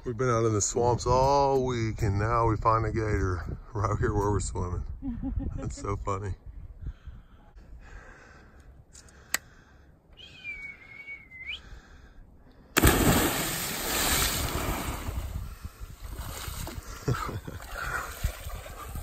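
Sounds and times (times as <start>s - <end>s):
whistled note: 10.2s - 11.6s
body splashing into water: 12.8s - 16.8s.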